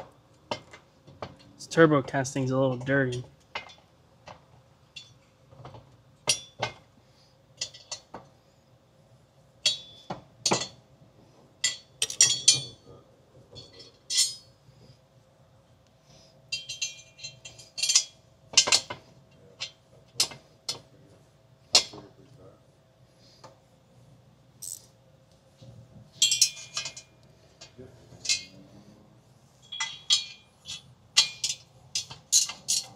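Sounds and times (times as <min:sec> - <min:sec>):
tools clinking on metal: 0:07.6 - 0:08.1, 0:09.6 - 0:10.8, 0:11.6 - 0:12.8, 0:13.5 - 0:14.6, 0:16.5 - 0:19.0, 0:26.2 - 0:28.6, 0:29.6 - 0:32.9.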